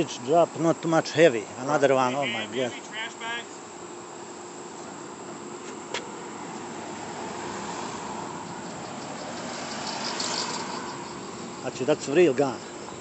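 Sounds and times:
faint steady hum: 0.0 - 13.0
passing vehicle: 5.9 - 13.0.

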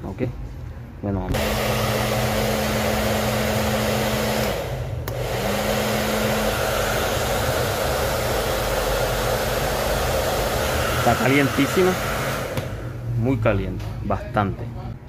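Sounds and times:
hair dryer running: 1.3 - 13.1.

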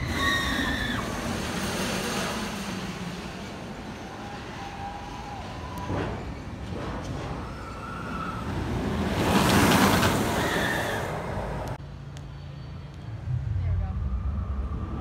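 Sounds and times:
riders screaming: 0.0 - 1.3, 7.4 - 8.7, 10.2 - 11.2
roller coaster wheels roaring: 0.0 - 15.0
low hum: 12.2 - 15.0.

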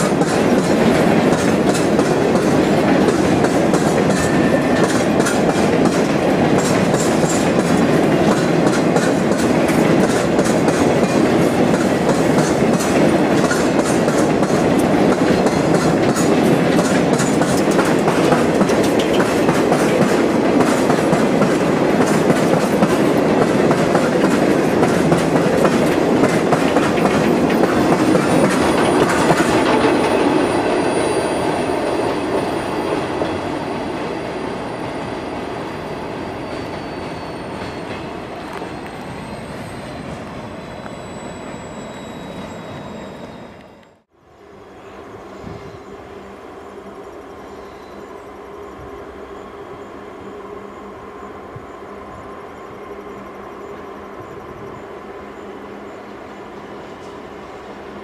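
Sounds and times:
wheels clicking over rail joints: 0.0 - 30.9
freight train wheel rumble: 0.0 - 58.0
high wheel squeal: 3.1 - 5.4, 27.2 - 44.0.

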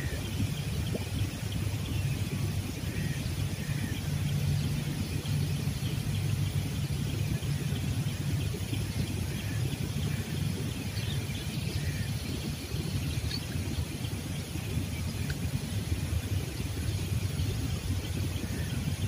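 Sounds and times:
low outdoor rumble by river: 0.0 - 19.0.

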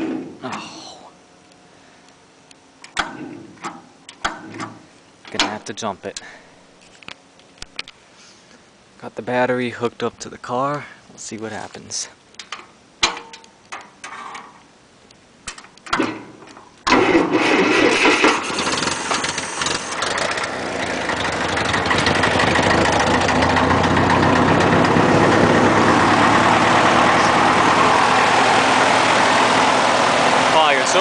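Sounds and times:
tractor engine starting and running: 15.5 - 31.0.

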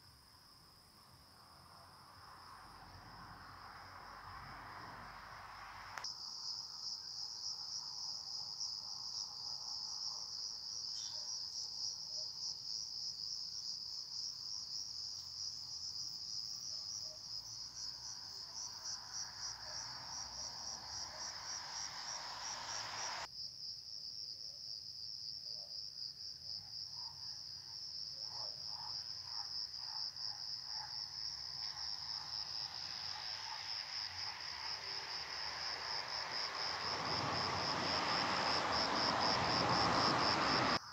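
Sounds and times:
crickets trilling: 1.1 - 23.3, 29.1 - 40.9
soft background wash: 19.0 - 23.3, 32.9 - 40.8.

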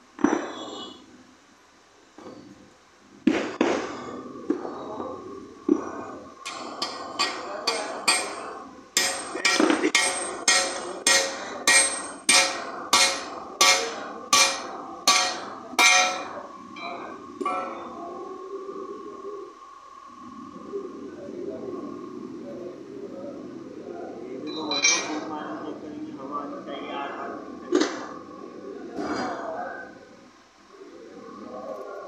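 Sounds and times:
hammer striking metal with ring: 6.5 - 17.9.

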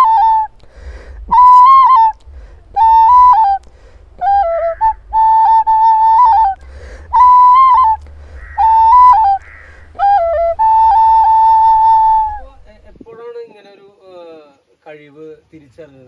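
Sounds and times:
nose flute melody: 0.0 - 13.0
breath noise: 0.5 - 5.1, 6.5 - 10.5.

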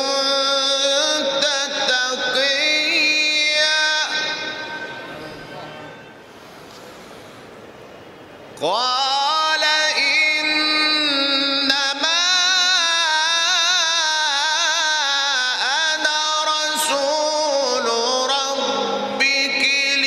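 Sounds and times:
man reciting melodically: 0.0 - 6.0, 8.5 - 20.0.

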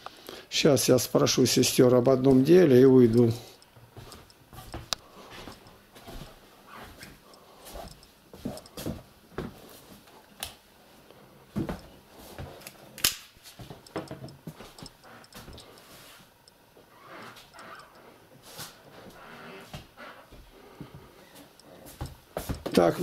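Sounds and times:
footsteps: 2.2 - 9.6.

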